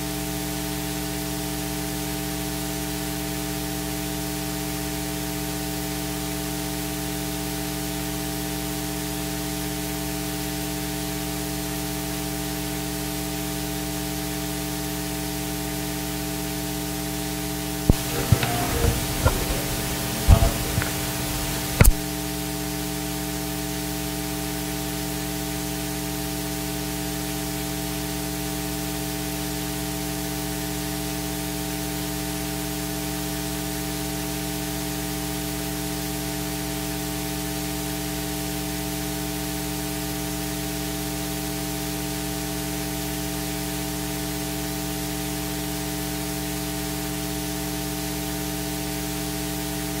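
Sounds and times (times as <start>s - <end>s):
electrical hiss: 17.9s - 22.0s
sharp click: 17.9s - 22.0s
mains hum with buzzing: 17.9s - 22.1s.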